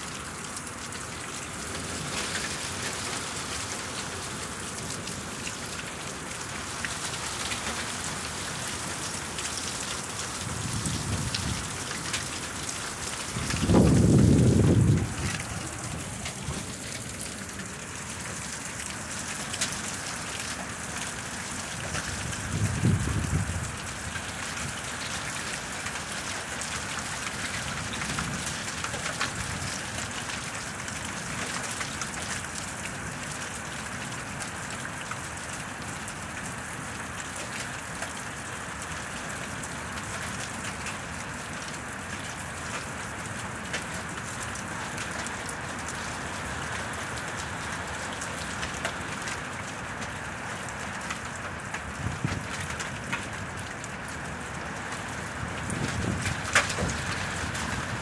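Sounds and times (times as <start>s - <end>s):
steady rain falling: 0.0s - 58.0s
low rumbles: 13.3s - 17.8s.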